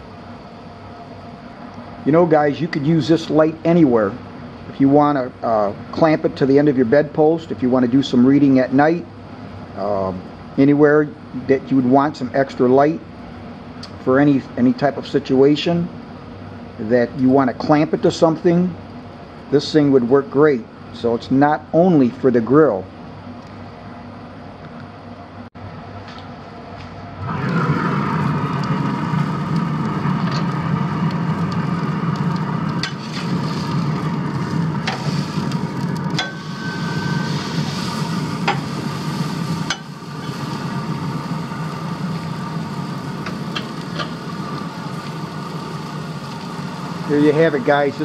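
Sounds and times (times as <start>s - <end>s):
low steady hum: 0.0s - 48.0s
steak sizzling on grill: 27.6s - 48.0s.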